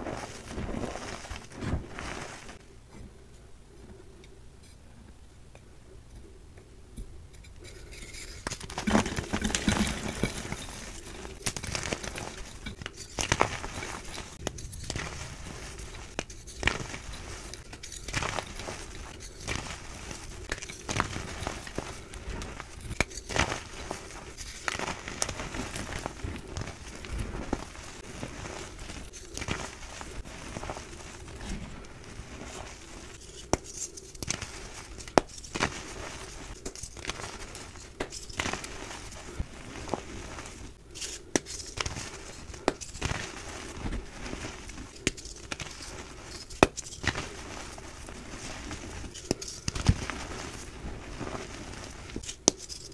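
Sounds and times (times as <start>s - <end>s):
chalk crunching and crackling: 0.0s - 2.6s, 7.6s - 52.9s
sharp chalk cracks: 33.2s - 38.9s, 41.0s - 43.4s, 44.8s - 47.6s, 52.2s - 52.9s.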